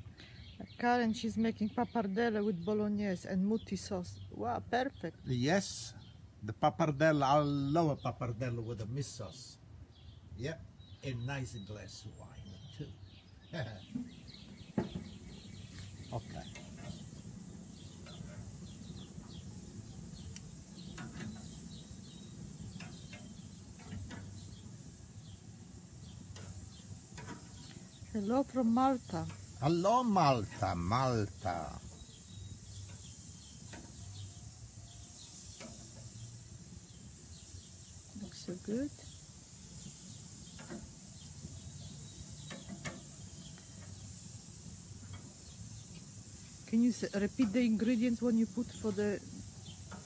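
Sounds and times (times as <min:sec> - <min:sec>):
small birds chirping: 0:00.0 - 0:50.0
shrimp sizzling on grill: 0:10.8 - 0:50.0
metal tongs clicking on grill: 0:17.8 - 0:18.6, 0:20.2 - 0:24.8, 0:26.1 - 0:27.8, 0:35.6 - 0:36.2, 0:40.5 - 0:41.1, 0:42.2 - 0:43.2, 0:49.7 - 0:50.0.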